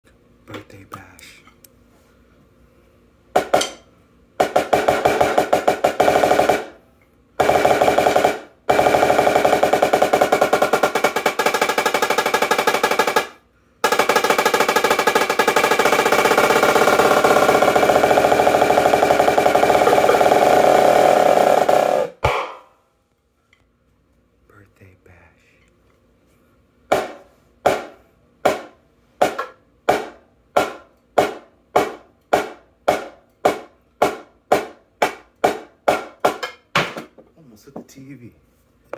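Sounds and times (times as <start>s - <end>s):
snare drum rolls: 3.4s - 3.7s, 4.4s - 6.8s, 7.4s - 22.7s, 26.9s - 37.0s.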